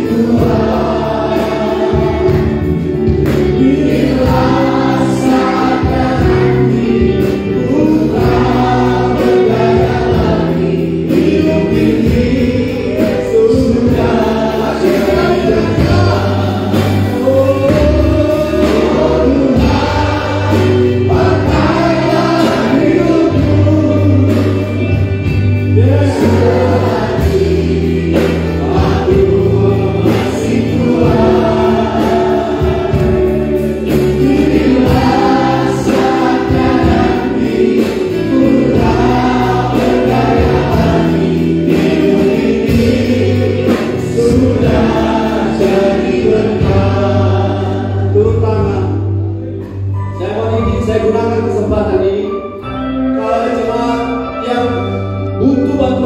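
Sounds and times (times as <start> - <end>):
backing singers: 0.0 - 49.9
instrumental accompaniment: 0.0 - 56.0
man singing into a microphone: 11.1 - 20.5, 21.1 - 25.0, 53.1 - 56.0.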